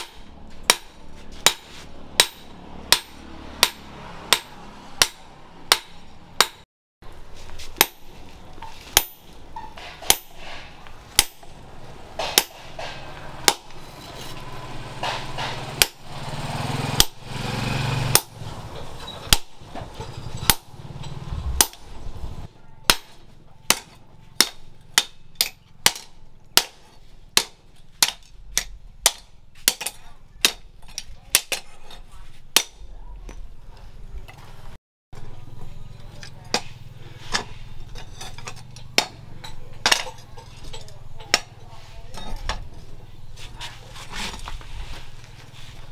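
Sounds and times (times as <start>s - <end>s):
hammer striking hot steel on anvil: 0.0s - 6.6s, 7.8s - 11.6s, 12.2s - 13.8s, 15.0s - 16.1s, 18.1s - 18.4s, 20.4s - 31.7s, 36.2s - 41.6s.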